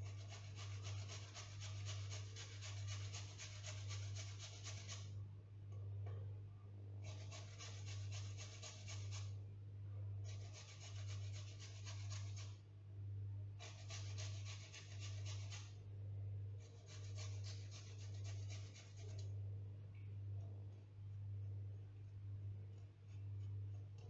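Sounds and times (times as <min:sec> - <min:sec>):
carrot rasping on a hand grater: 0:00.0 - 0:05.1, 0:07.0 - 0:09.3, 0:10.3 - 0:12.6, 0:13.6 - 0:15.8, 0:16.7 - 0:19.2
steady low hum: 0:03.8 - 0:24.0.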